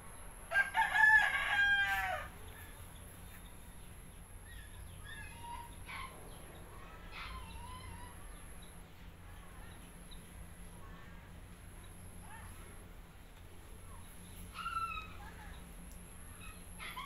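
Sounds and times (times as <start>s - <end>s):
low background rumble: 0.0s - 17.0s.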